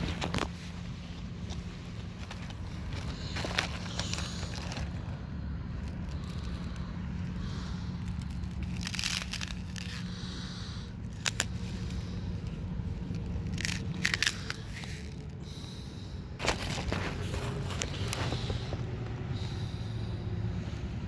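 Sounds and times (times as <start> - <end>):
steady low rumble: 0.0 - 21.0
plastic bottle crinkling: 1.4 - 5.1, 5.8 - 10.2, 13.0 - 15.4.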